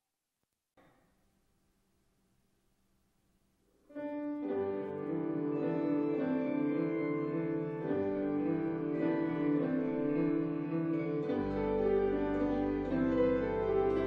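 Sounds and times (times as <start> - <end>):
church organ slow chords: 4.3 - 14.0.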